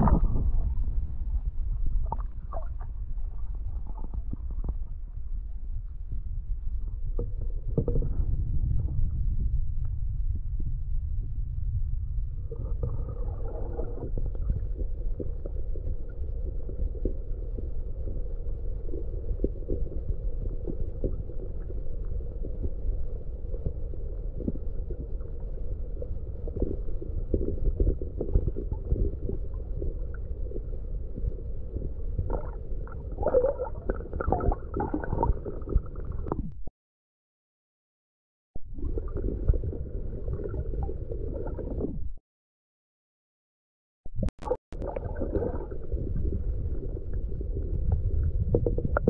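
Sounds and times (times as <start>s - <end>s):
water gurgling bursts: 0.0s - 1.1s, 12.5s - 15.3s, 31.7s - 36.6s, 38.7s - 42.1s, 44.2s - 49.0s
muffled underwater river rumble: 0.0s - 36.7s, 38.6s - 42.2s, 44.1s - 49.0s.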